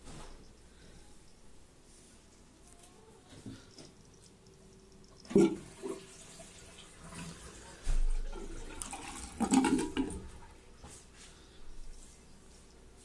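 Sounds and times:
tap water running into sink: 0:05.2 - 0:10.2.

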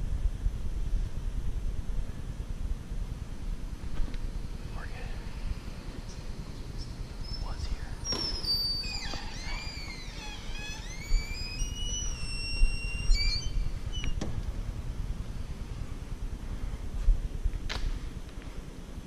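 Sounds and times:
low rumble of movement: 0:00.0 - 0:19.0
heavy door squealing on hinges: 0:08.0 - 0:14.3.

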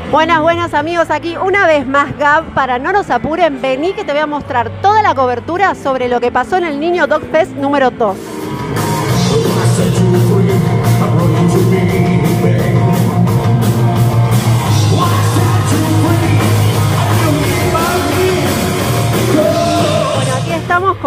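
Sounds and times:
live rock band playing: 0:07.8 - 0:21.0
man singing into microphone: 0:09.1 - 0:13.2, 0:14.7 - 0:20.5.

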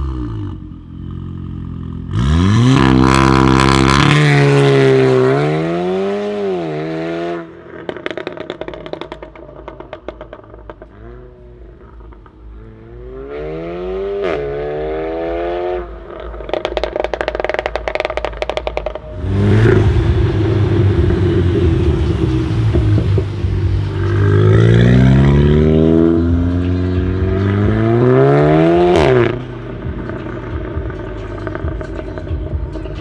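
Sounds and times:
car engine accelerating hard: 0:01.8 - 0:08.7, 0:12.6 - 0:33.0
exhaust crackles: 0:15.8 - 0:33.0.

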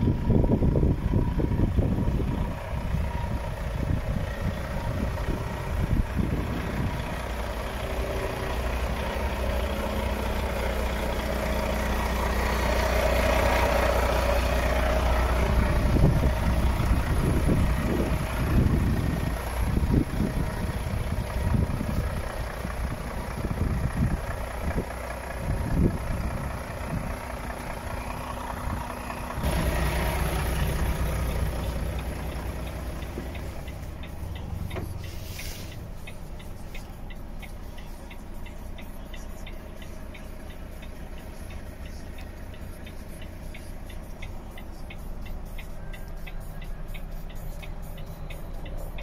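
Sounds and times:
wind gusts on microphone: 0:00.0 - 0:07.2
diesel truck engine idling: 0:00.0 - 0:49.0
light regular ticking: 0:02.0 - 0:49.0.

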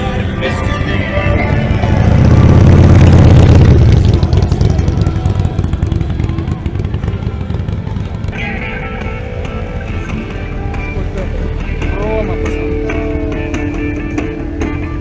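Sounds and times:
motorcycle engine passing by: 0:00.3 - 0:12.0.

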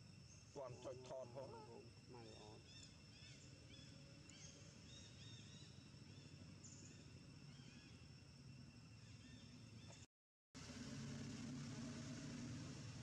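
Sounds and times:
high insect hum: 0:00.0 - 0:13.0
small birds chirping: 0:00.1 - 0:08.1.

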